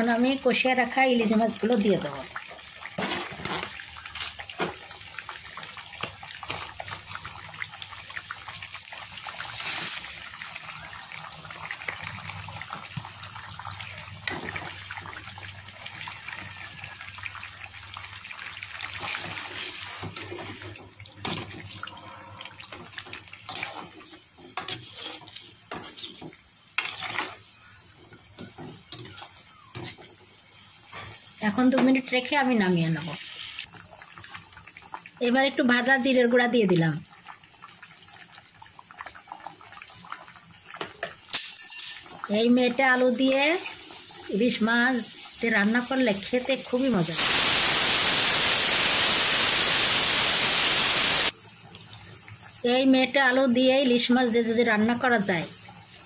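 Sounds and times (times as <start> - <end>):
curry bubbling in wok: 1.3 - 32.3, 33.6 - 41.3
spatula scraping pan: 23.5 - 27.4.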